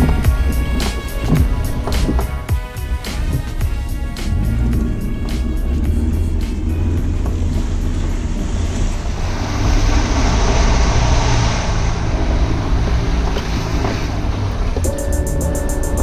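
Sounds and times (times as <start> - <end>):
tyres splashing through water: 0.0 - 14.8
car engine running under load: 3.3 - 16.0.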